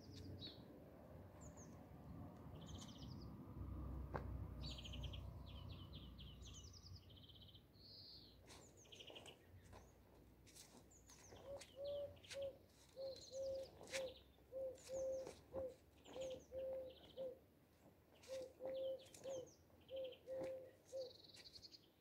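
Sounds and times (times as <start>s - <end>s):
small birds chirping and trilling: 1.3s - 1.8s, 2.4s - 3.4s, 4.6s - 17.4s, 18.1s - 22.0s
dove cooing: 11.4s - 17.4s, 18.2s - 21.2s.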